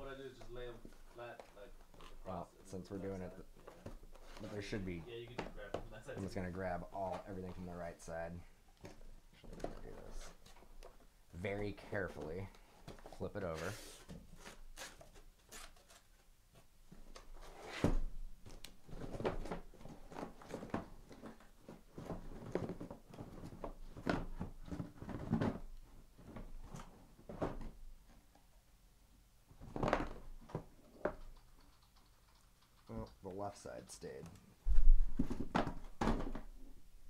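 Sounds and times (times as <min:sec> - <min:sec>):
cardboard rustling and scraping: 0:11.8 - 0:16.2, 0:34.7 - 0:36.5.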